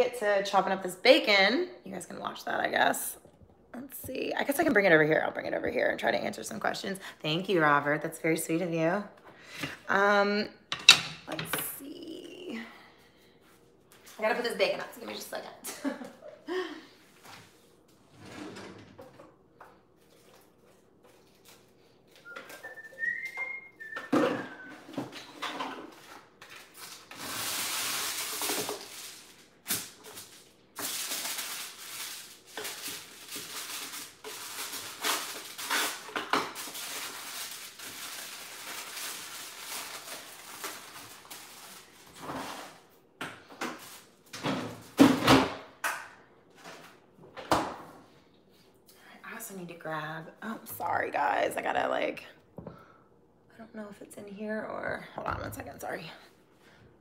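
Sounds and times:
kitchen wrap rustling and crinkling: 11.5s - 18.3s, 19.4s - 45.8s, 46.4s - 48.9s
whistled note: 22.2s - 24.8s.

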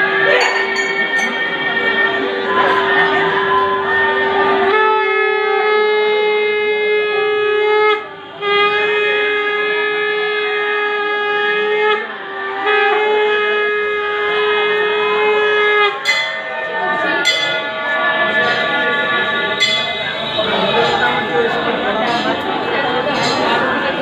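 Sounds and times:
conch shell blasts: 12.7s - 21.3s.

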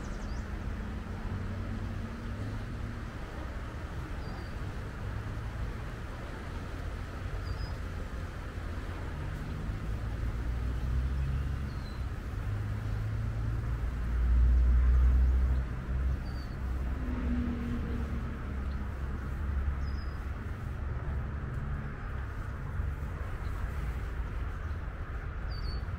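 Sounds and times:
distant traffic: 0.0s - 25.9s.

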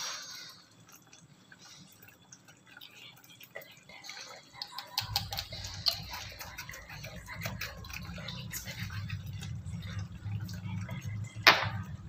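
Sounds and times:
thick mixture bubbling and popping: 0.0s - 12.0s
steady low rumble: 5.4s - 12.0s.

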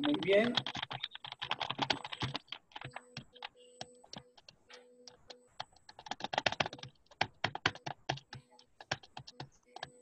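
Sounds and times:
keyboard typing clicks: 0.0s - 10.0s.

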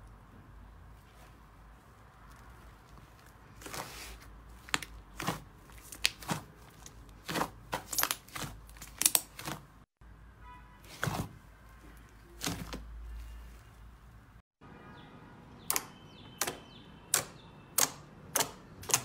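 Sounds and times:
slime squelching: 1.1s - 9.9s, 10.9s - 14.2s.

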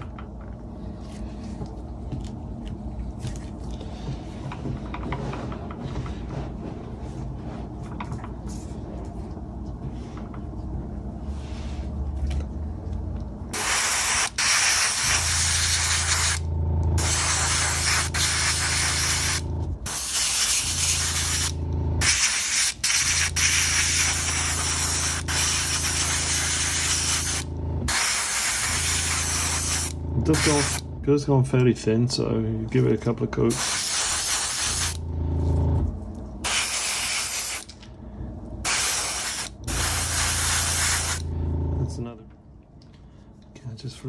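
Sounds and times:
low steady hum: 0.0s - 44.0s
airbrush spraying hiss: 13.5s - 16.4s, 17.0s - 30.8s, 33.5s - 35.0s, 36.4s - 37.7s, 38.7s - 41.2s.

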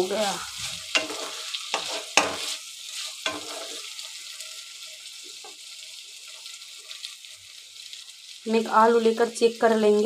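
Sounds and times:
food sizzling in oil: 0.0s - 10.0s
spatula scraping a pan: 0.2s - 7.0s.

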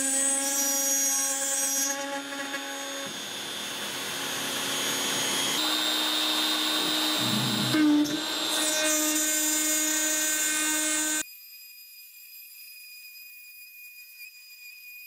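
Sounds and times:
router bit cutting aluminum: 0.0s - 11.2s
router motor whine: 0.0s - 11.2s.

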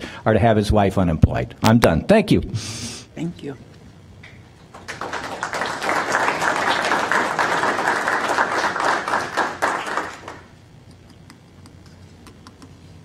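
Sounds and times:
audience applauding: 4.7s - 10.6s.

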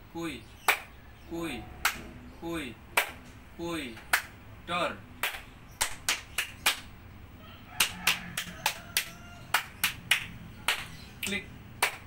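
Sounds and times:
hand claps and finger snaps: 0.7s - 0.9s, 1.8s - 2.1s, 3.0s - 3.2s, 4.0s - 4.4s, 5.2s - 6.9s, 7.8s - 12.0s.

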